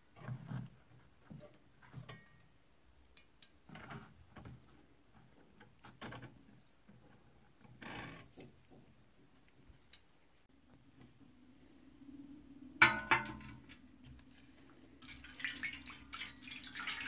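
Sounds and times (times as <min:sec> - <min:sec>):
water splash: 0:15.0 - 0:17.0.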